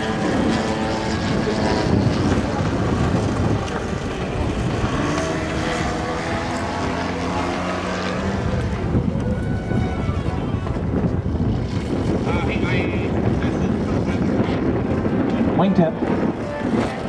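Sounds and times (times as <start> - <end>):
model airplane engine running: 0.0 - 7.7
constant rushing noise: 0.0 - 17.0.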